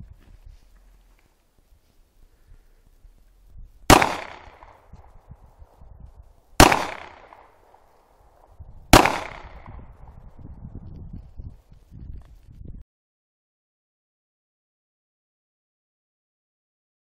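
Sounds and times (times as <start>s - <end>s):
pistol shots with echo: 3.9s - 4.8s, 6.6s - 7.8s, 8.9s - 9.9s.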